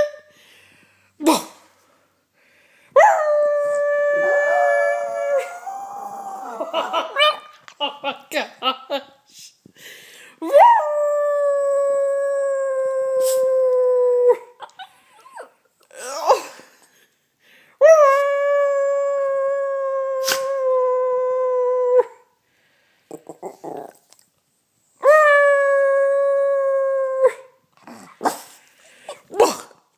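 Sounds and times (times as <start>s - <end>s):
dog howling: 3.0s - 7.3s.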